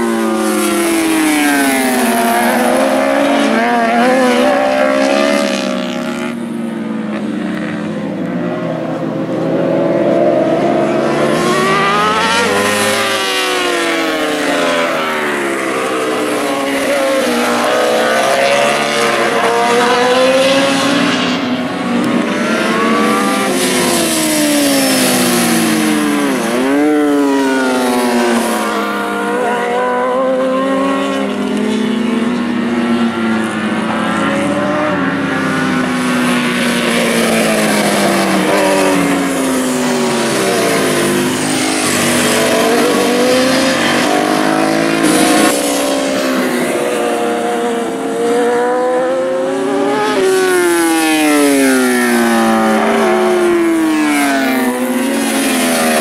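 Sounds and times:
motorcycles racing past: 0.0 - 56.0.

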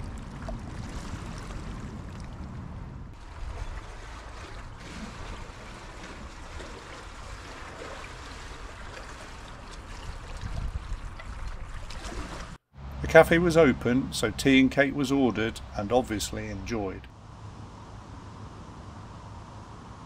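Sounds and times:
kayak paddle splashing water: 3.2 - 12.6.

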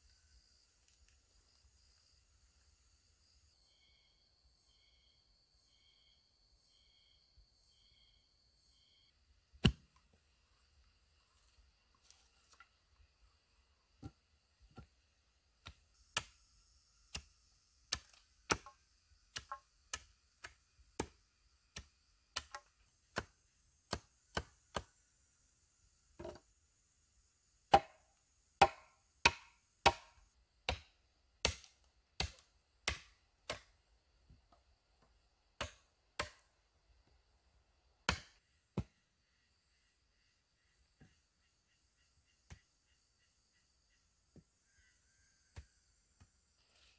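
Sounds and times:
machete chopping wood: 9.6 - 9.9, 17.9 - 18.8, 27.7 - 28.0, 28.6 - 33.7, 35.6 - 36.4, 38.1 - 38.9.

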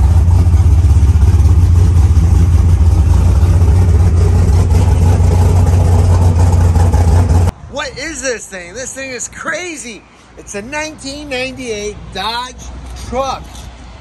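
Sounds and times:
race engine idling loudly: 0.0 - 7.5.

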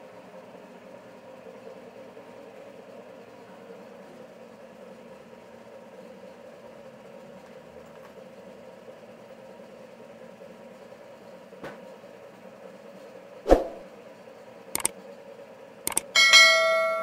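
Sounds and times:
sharp click: 15.9 - 16.1
machinery humming: 15.9 - 17.0.

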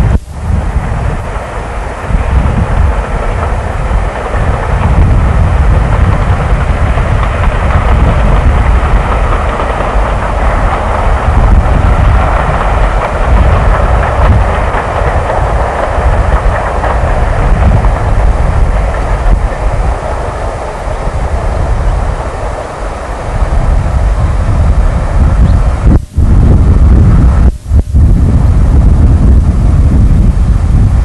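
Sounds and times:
distant train passing: 0.0 - 31.0
wind buffeting microphone: 0.0 - 31.0.

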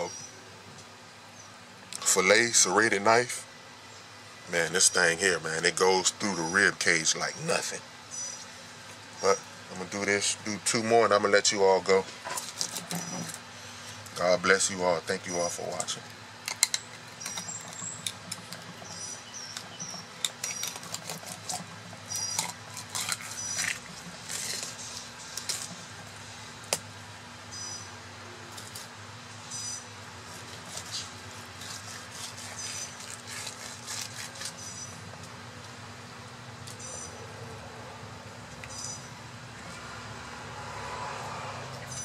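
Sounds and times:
steady low hum: 0.0 - 42.0
knife cutting and scraping fish: 12.2 - 14.2, 16.5 - 18.8, 19.5 - 25.8, 30.2 - 35.0.

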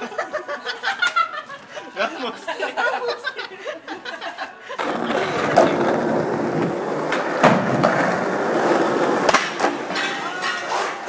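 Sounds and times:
skateboard wheels rolling on pavement: 4.8 - 10.0
skateboard clacks: 4.8 - 11.0.

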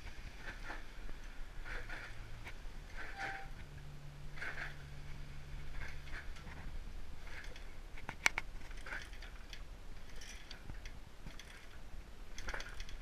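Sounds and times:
handling clicks and rustles: 0.0 - 13.0.

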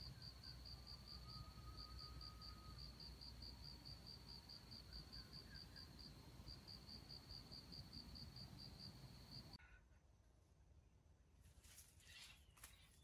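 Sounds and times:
insect chirping: 0.0 - 9.6.

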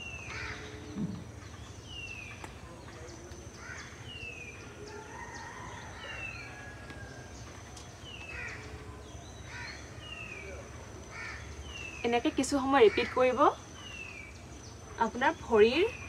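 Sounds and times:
crow cawing: 0.3 - 0.8, 9.5 - 9.9, 11.1 - 11.5.

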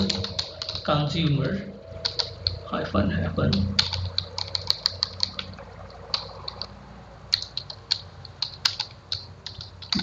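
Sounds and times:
computer keyboard keystrokes: 0.0 - 1.0, 2.0 - 2.6, 3.5 - 6.7, 7.3 - 10.0.

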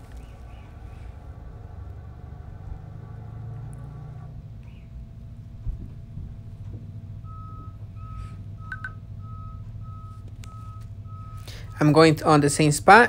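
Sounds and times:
short high beeps: 7.3 - 11.4.

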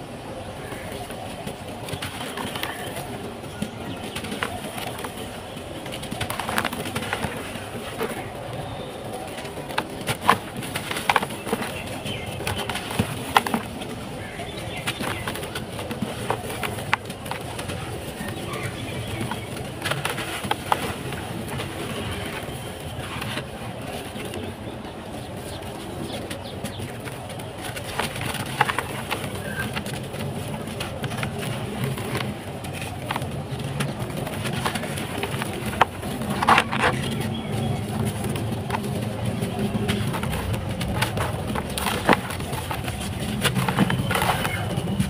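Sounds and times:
sharp crackles of pieces snapping: 25.3 - 45.0
gritty crunching of crumbling mud: 26.8 - 45.0.

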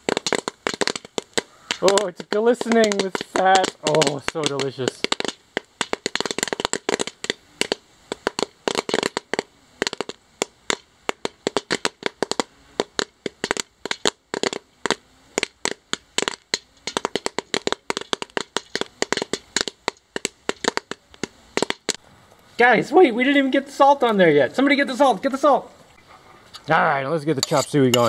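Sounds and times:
popcorn crackling and popping: 0.0 - 22.0.

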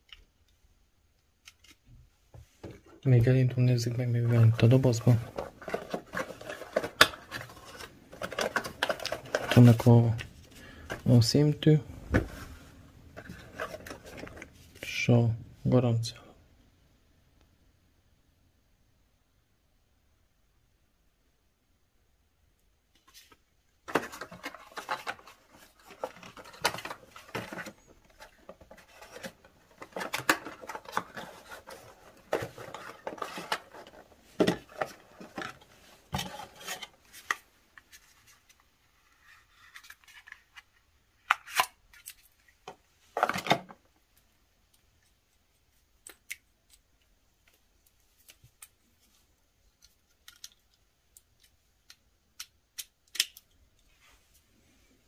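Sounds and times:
paper and cardboard rustling: 3.6 - 11.3, 12.1 - 14.7, 23.0 - 42.3.

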